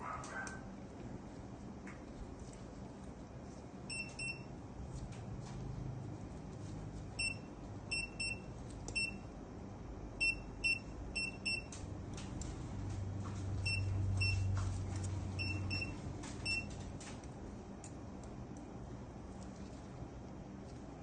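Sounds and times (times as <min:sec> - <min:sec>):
patient monitor beeps: 0:03.9 - 0:04.5, 0:07.2 - 0:09.3, 0:10.2 - 0:11.8, 0:13.6 - 0:14.6, 0:15.4 - 0:16.8.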